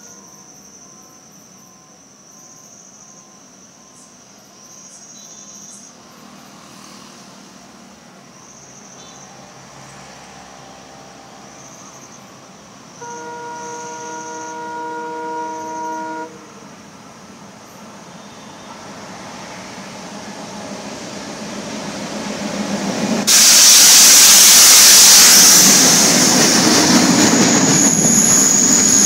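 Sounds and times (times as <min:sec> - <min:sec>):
crickets chirping: 0:00.0 - 0:29.0
train horn blast: 0:13.0 - 0:16.7, 0:18.2 - 0:18.9.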